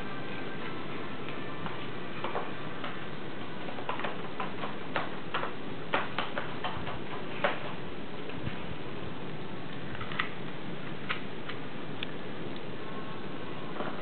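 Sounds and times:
cat chewing cardboard: 2.2 - 8.4.

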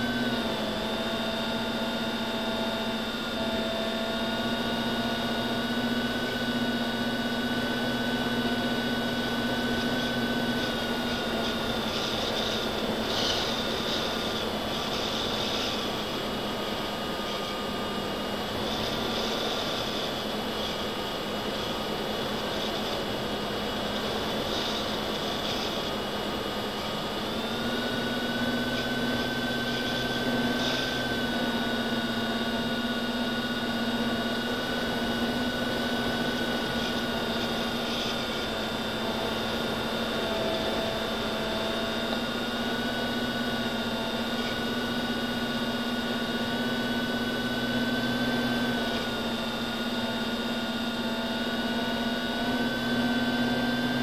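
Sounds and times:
electric motor whine: 0.0 - 54.0.

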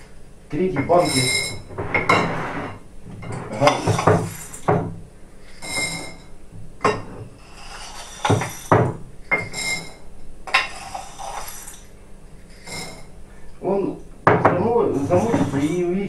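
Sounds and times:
short glassy rings: 1.0 - 1.7.

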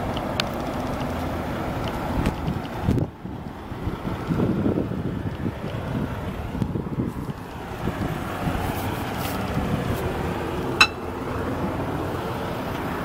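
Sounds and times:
traffic noise: 0.0 - 13.0
sharp metallic clink: 10.8 - 11.0.

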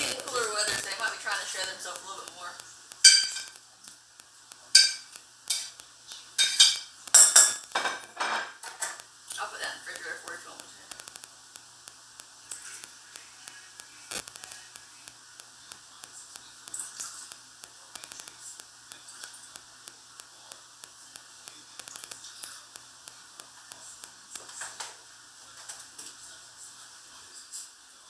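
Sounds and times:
utensil clicking on saucepan: 0.0 - 11.3.

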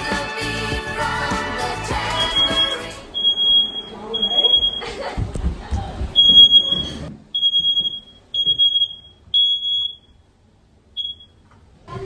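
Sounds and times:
smoke alarm beeping: 2.0 - 5.0, 6.2 - 10.3, 10.9 - 11.4.

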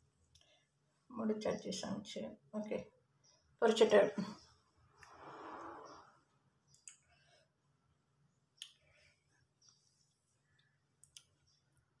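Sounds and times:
faint clicks: 10.5 - 11.6.

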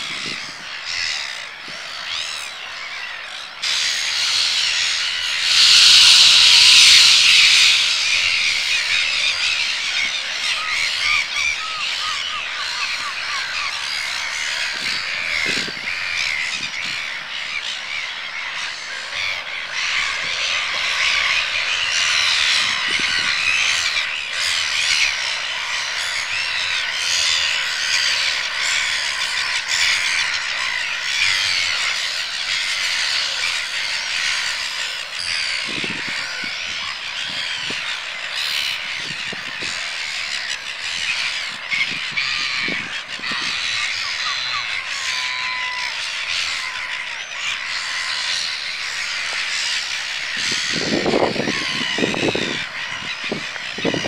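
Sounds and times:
gulls calling: 0.0 - 54.0.

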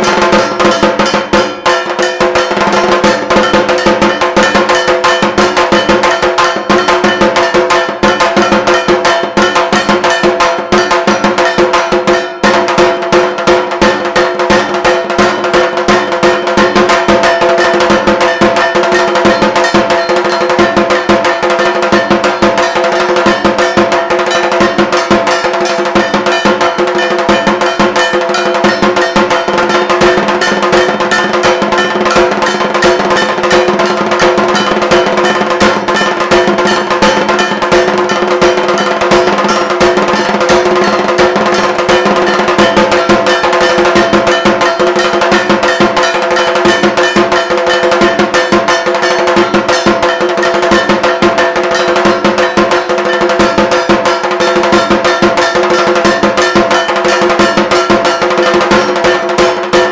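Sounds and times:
drums in fast rhythm: 0.0 - 59.9
metal gong clanging: 15.9 - 59.9.

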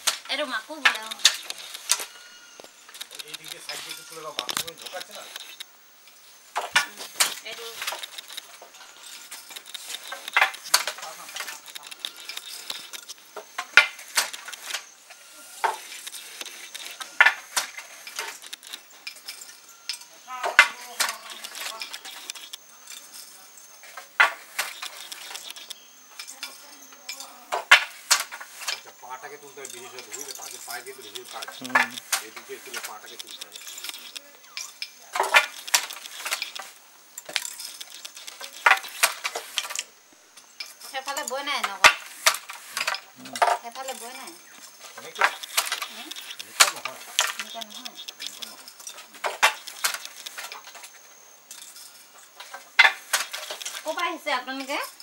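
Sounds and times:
wooden loom parts clicking: 0.0 - 55.0.

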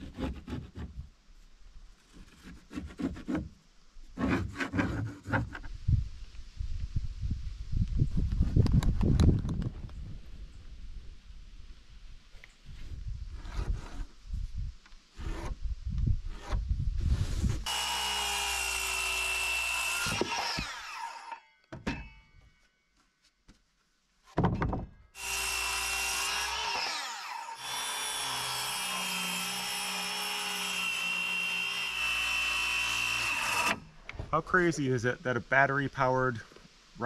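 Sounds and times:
circular saw cutting wood: 17.2 - 21.4, 25.2 - 33.9
wood knocking: 24.4 - 24.9.

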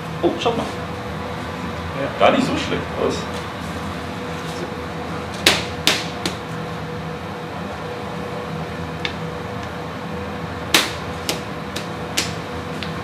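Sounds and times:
steady hum: 0.0 - 13.0
dough slapping on work surface: 5.4 - 6.5, 10.7 - 13.0.

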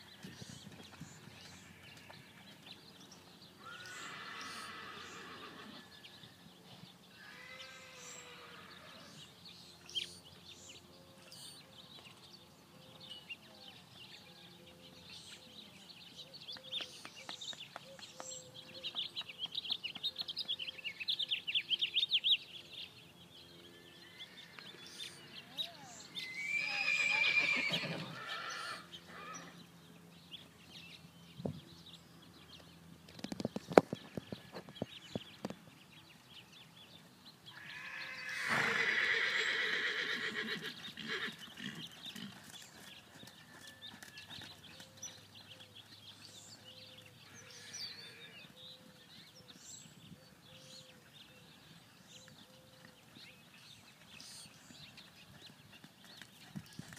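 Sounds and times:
horses whinnying: 3.6 - 6.0, 7.2 - 9.2, 26.2 - 29.6, 37.5 - 42.6, 47.3 - 48.5.

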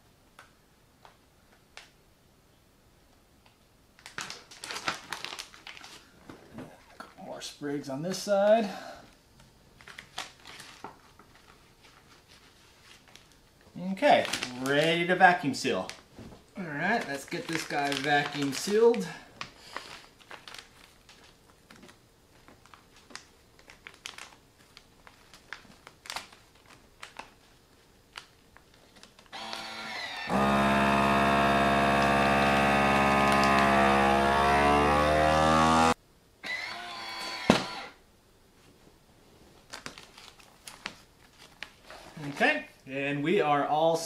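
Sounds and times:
plastic bag rustling: 4.0 - 6.9, 9.8 - 29.4, 38.6 - 42.6.

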